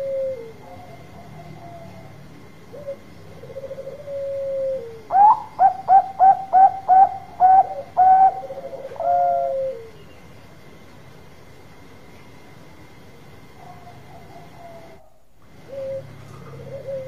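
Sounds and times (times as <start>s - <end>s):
dove trilling and cooing: 0.0s - 10.1s, 13.6s - 17.0s.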